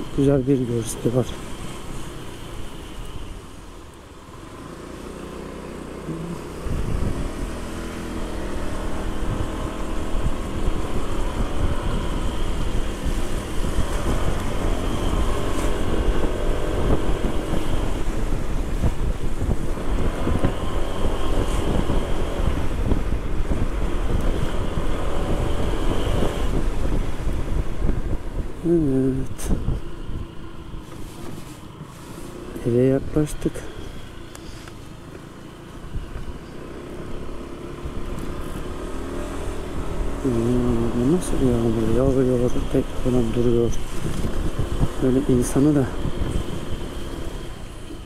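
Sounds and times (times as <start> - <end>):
scooter engine accelerating: 1.3 - 31.4, 32.0 - 48.0
wind buffeting microphone: 6.4 - 31.4, 37.8 - 48.0.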